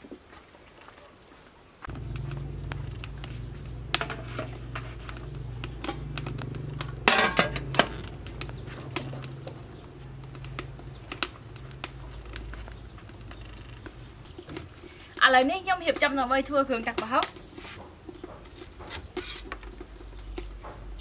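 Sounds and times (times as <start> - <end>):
steady low hum: 1.9 - 13.3
metal pot lids clattering: 7.0 - 8.1.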